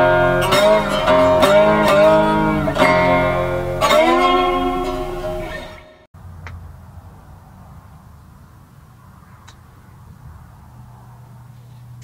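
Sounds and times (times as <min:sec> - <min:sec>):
strummed chords on string instrument: 0:00.0 - 0:06.1.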